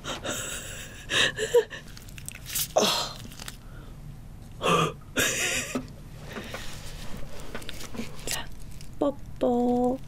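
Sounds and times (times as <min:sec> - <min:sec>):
woman gasping in disgust: 0:02.8 - 0:03.3.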